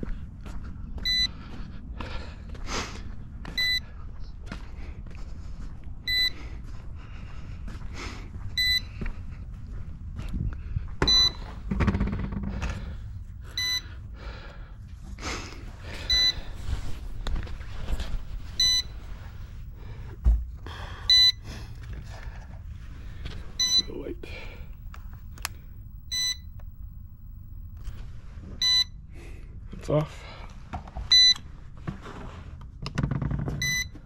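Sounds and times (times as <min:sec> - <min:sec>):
footsteps: 0:14.2 - 0:28.6
high electronic beep: 0:16.1 - 0:16.4, 0:18.6 - 0:19.0, 0:23.6 - 0:27.8
handling noise: 0:16.4 - 0:28.0
heavy thump: 0:19.8 - 0:20.8.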